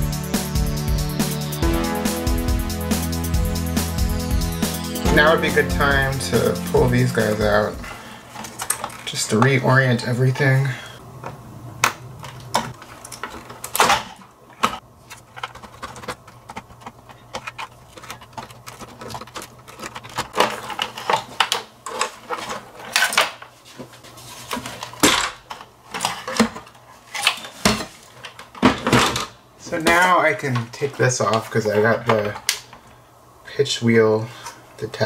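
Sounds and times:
knocks of parts handled: 11.2 - 23.4.

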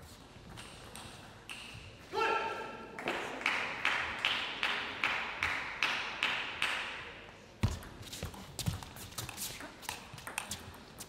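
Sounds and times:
table tennis ball bouncing: 8.7 - 10.8.

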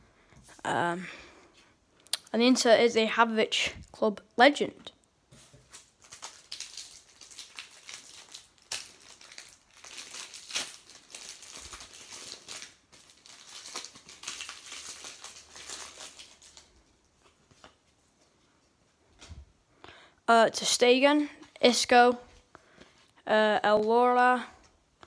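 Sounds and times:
foil wrapper crinkling and tearing: 5.6 - 16.9.

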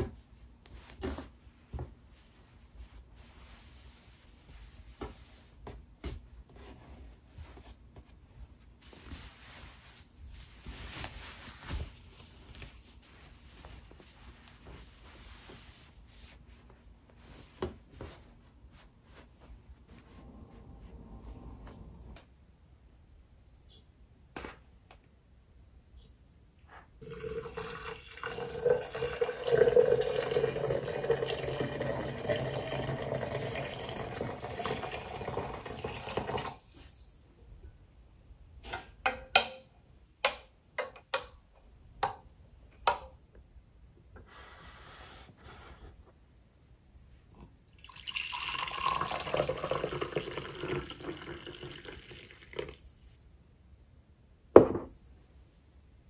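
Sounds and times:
coffee pouring into mug: 27.0 - 36.6, 47.7 - 52.8
water pouring into glass: 27.0 - 36.6, 47.7 - 52.8.

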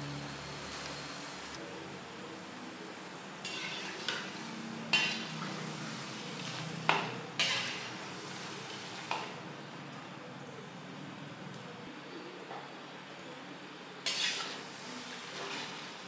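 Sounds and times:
fritters sizzling in oil: 3.1 - 9.5, 14.0 - 16.0
metal skimmer scraping a pan: 3.4 - 5.6, 7.4 - 7.9, 14.1 - 14.6.

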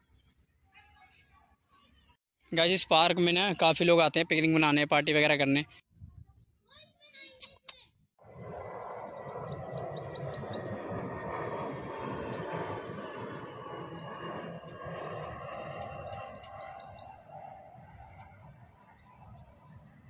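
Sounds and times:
jet airliner passing overhead: 8.2 - 20.0
birds chirping and trilling: 8.3 - 20.0.

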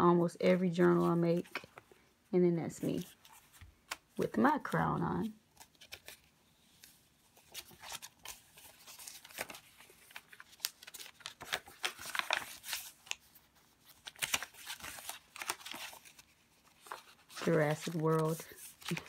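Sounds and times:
paper pages rustling: 0.8 - 2.0, 2.8 - 19.0.

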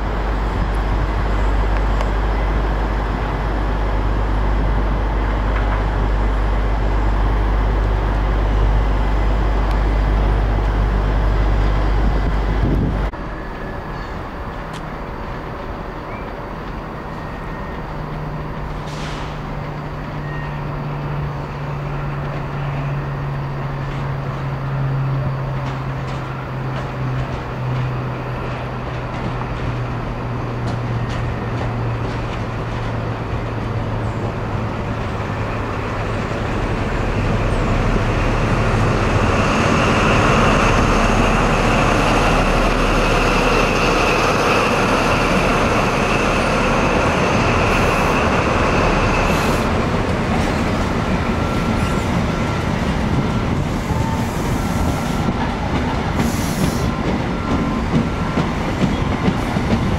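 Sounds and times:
diesel train engine humming: 0.0 - 59.9
train wheels rolling: 0.0 - 59.9
high squeal: 13.3 - 14.3, 20.1 - 23.5, 39.4 - 49.8.

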